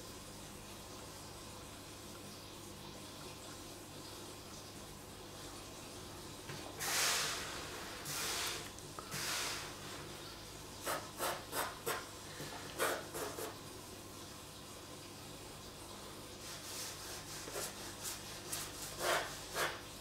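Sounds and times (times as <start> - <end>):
pencil sketching on paper: 16.5 - 19.8.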